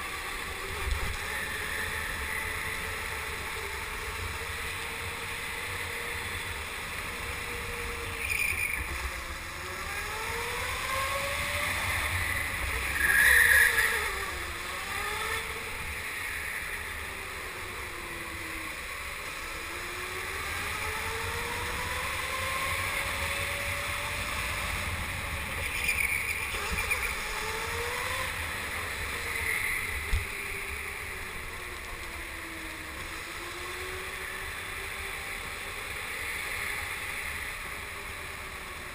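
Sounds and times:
go-kart motor whine: 0.0s - 38.9s.

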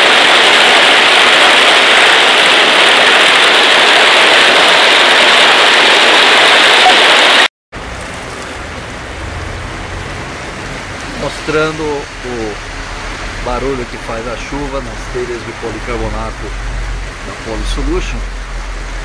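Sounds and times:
hail and heavy rain on plastic roof: 0.0s - 7.5s
quiet rain on plastic roof: 0.0s - 19.0s.

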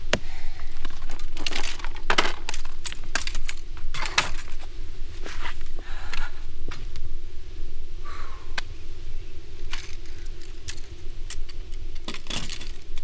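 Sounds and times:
low rumble: 0.0s - 13.0s
sharp clicks and crackles: 0.8s - 4.6s.

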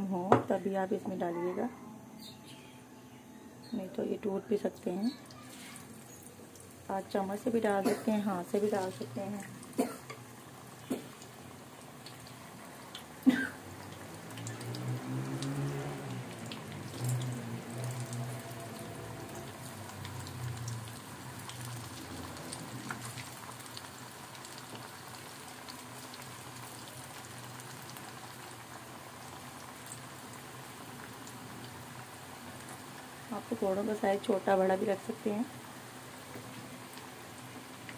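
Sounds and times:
batter deep-frying sizzle: 3.7s - 37.9s.

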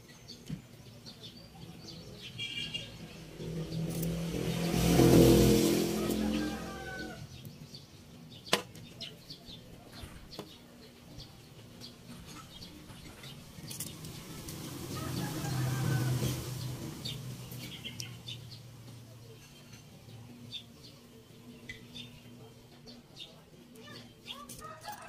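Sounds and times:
motor vehicle driving past: 2.7s - 7.4s, 13.9s - 18.4s.

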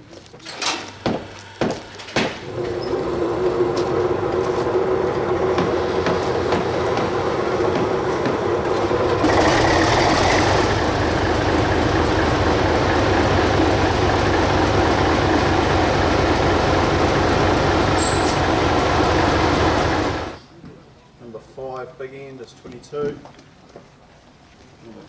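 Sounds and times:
diesel engine idling: 2.5s - 20.4s.

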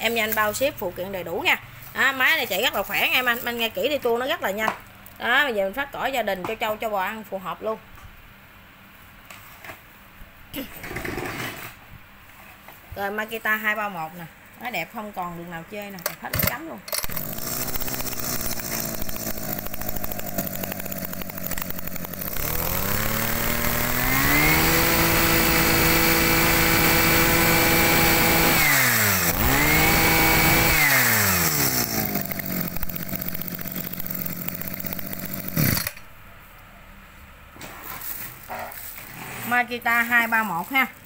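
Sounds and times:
brush cutter engine revving: 16.3s - 36.0s.

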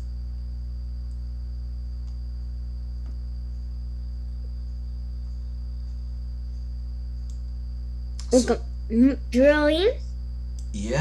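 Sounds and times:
low electrical hum: 0.0s - 11.0s
faint clicks: 2.0s - 2.2s, 7.2s - 7.5s, 10.5s - 10.8s
high-pitched whine: 10.6s - 11.0s.

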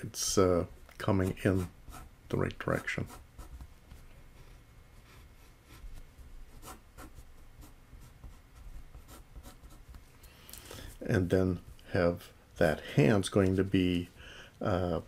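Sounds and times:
pencil scratching on paper: 1.2s - 2.1s, 2.7s - 3.6s, 5.0s - 10.0s.

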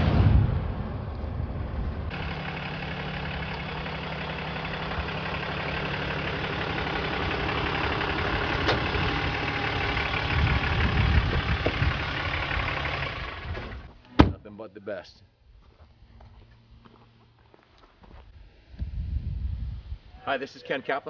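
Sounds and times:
diesel pickup truck engine running: 0.0s - 14.0s.

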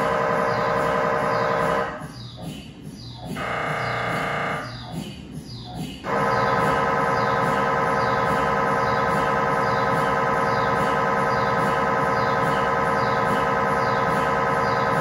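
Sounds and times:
mri scanner electronic buzz: 0.0s - 2.1s, 3.4s - 5.0s.

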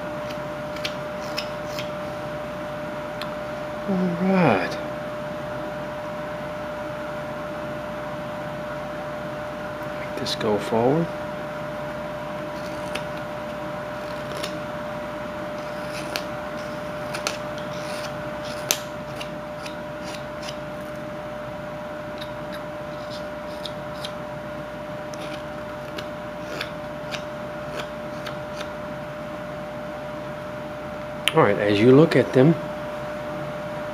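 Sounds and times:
faint steady hum: 0.0s - 33.9s
knife cutting and scraping wood: 0.2s - 2.0s, 12.5s - 13.3s, 13.9s - 14.6s, 15.5s - 21.0s, 22.1s - 24.2s, 25.1s - 28.8s.

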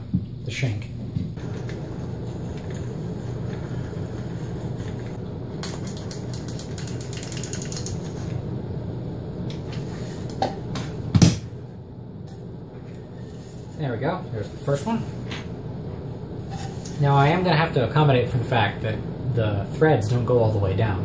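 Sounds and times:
fast clicks: 5.6s - 8.1s.

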